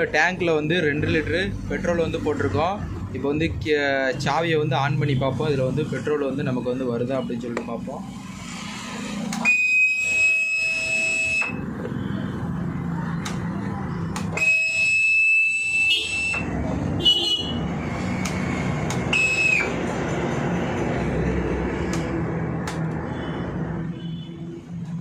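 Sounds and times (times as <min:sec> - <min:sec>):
fuel pump whine: 0:07.6 - 0:16.8, 0:17.6 - 0:24.3
clicks: 0:13.2 - 0:13.5, 0:18.2 - 0:19.1, 0:21.9 - 0:23.1.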